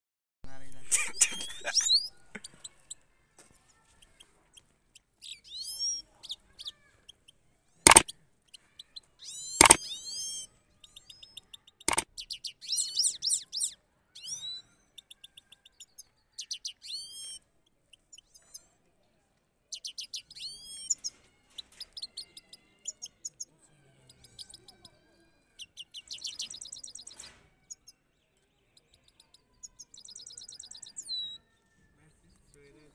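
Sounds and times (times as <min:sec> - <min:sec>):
sharp clicks: 0:07.9 - 0:08.1, 0:09.6 - 0:09.9, 0:11.9 - 0:12.1.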